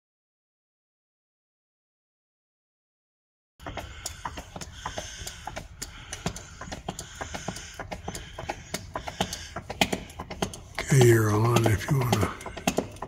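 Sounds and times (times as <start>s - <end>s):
hand pump clicking: 3.6s - 13.0s.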